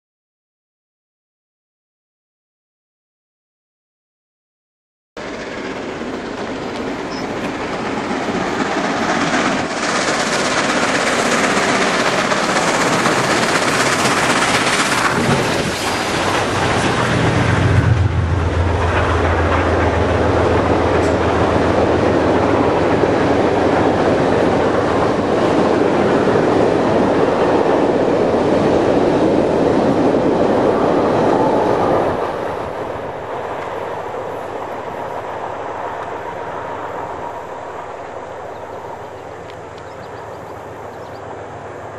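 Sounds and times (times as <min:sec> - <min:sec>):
train wheels clattering on rail joints: 0:05.2 - 0:30.3
steam locomotive passing: 0:05.2 - 0:41.9.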